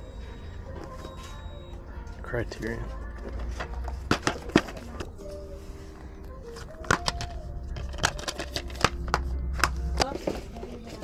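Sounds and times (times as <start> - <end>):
faint music with held notes: 0.0 - 11.0
hard objects clicking and clacking: 6.8 - 11.0.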